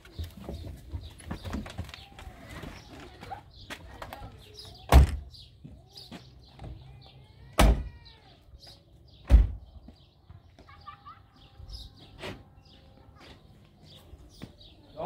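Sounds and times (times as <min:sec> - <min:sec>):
small birds chirping: 0:00.0 - 0:15.0.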